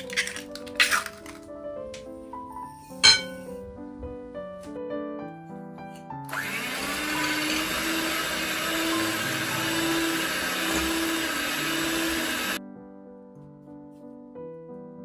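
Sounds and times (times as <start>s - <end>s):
soft piano music: 0.0s - 15.0s
beaters whisking in glass bowl: 6.3s - 12.6s
electric hand mixer whirring: 6.3s - 12.6s.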